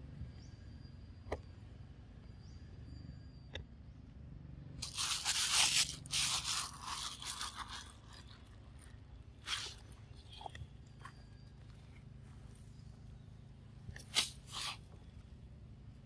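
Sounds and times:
monkey scuffling and scraping on rock: 0:04.8 - 0:11.2, 0:14.0 - 0:14.9.

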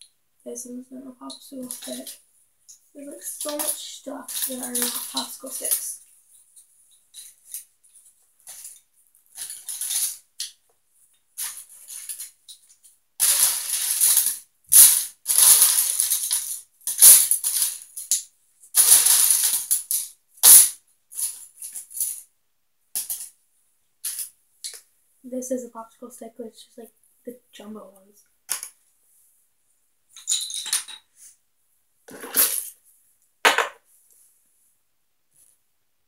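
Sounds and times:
wooden sticks rattling: 0:01.2 - 0:02.2, 0:03.2 - 0:06.0, 0:08.4 - 0:10.6, 0:11.4 - 0:18.2, 0:32.1 - 0:32.7.

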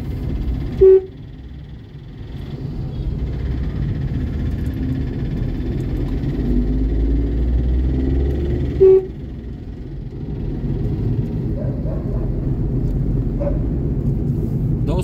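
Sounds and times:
road traffic rumble: 0:00.0 - 0:15.0
vehicle horn toot: 0:00.6 - 0:01.4, 0:08.6 - 0:09.4.

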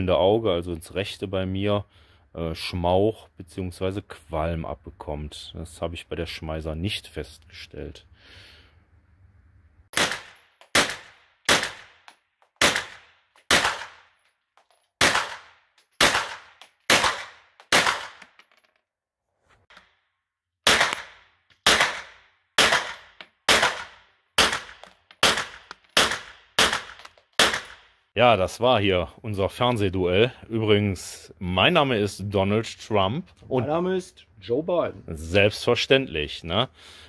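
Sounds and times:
rifle shots echoing: 0:09.9 - 0:14.2, 0:15.0 - 0:18.4, 0:20.6 - 0:27.9.

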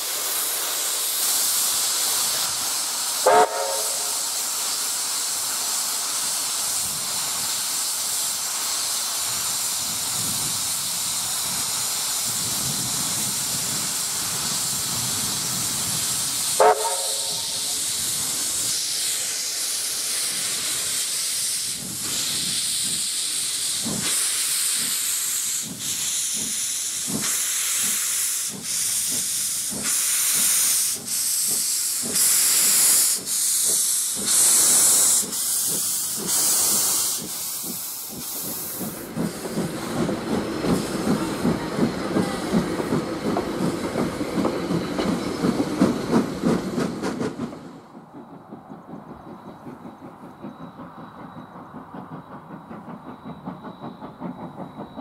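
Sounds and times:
steam locomotive hissing: 0:00.0 - 0:55.0
locomotive exhaust beats: 0:03.1 - 0:04.8, 0:12.4 - 0:18.8, 0:21.7 - 0:55.0
steam whistle blasts: 0:03.2 - 0:04.2, 0:16.6 - 0:17.8.

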